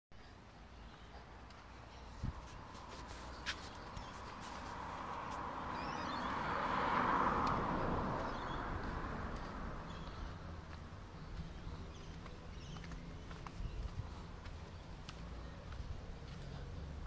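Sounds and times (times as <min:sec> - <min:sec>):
passing vehicle road noise: 0:01.3 - 0:17.0
faint bird chirps: 0:05.7 - 0:06.3.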